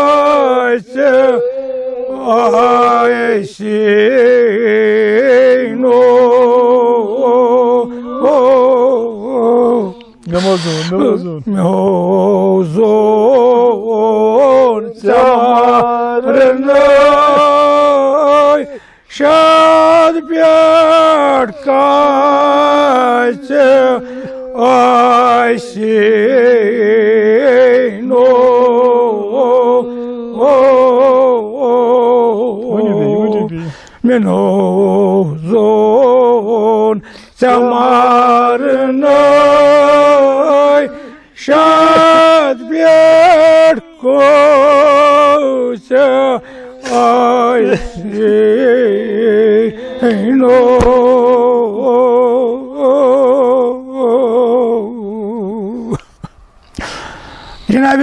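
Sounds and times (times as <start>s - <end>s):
man chanting: 0.0s - 56.0s, 57.6s - 58.0s
quick breath: 10.3s - 11.0s, 18.8s - 19.1s, 24.0s - 24.4s, 33.6s - 34.0s, 37.0s - 37.4s, 46.4s - 47.0s, 56.1s - 57.7s.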